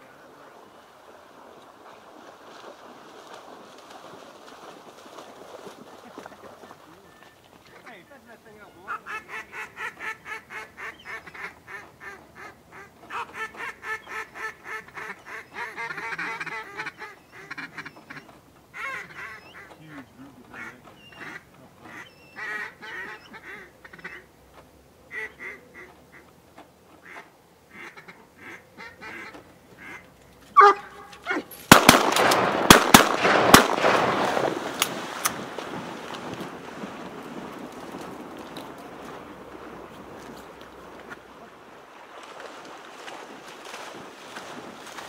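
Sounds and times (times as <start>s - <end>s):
duck quacking: 8.8s - 24.3s, 25.1s - 26.2s, 27.0s - 31.4s
shotgun blasts: 31.7s - 35.6s.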